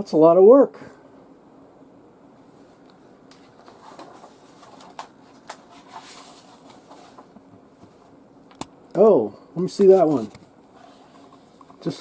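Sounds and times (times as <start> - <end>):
faint steady hum: 0.0 - 12.0
paper rustling: 3.3 - 8.1.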